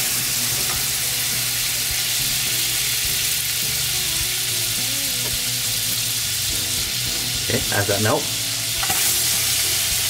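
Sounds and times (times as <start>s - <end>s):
butter sizzling in a pot: 0.0s - 10.0s.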